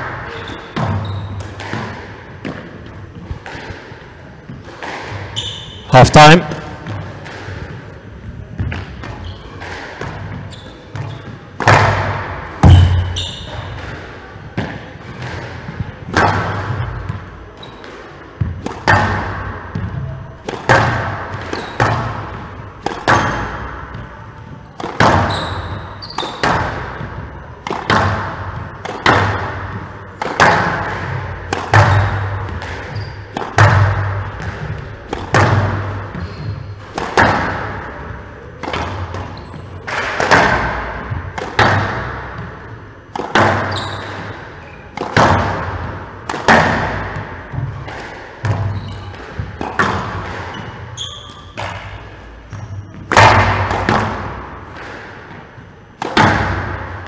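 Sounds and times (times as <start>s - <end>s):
squash ball cracks: 8.7s - 17.2s, 17.8s - 24.0s, 24.8s - 25.3s, 26.2s - 36.2s, 36.8s - 38.0s, 38.6s - 52.2s, 53.0s - 57.0s.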